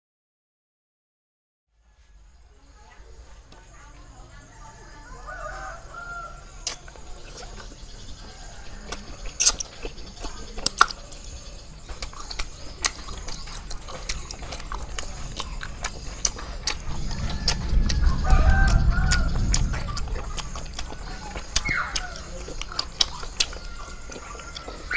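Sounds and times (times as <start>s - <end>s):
wet sticky chewing: 5.9s - 24.9s
sharp mouth clicks: 6.6s - 7.6s, 8.9s - 11.3s, 11.9s - 18.0s.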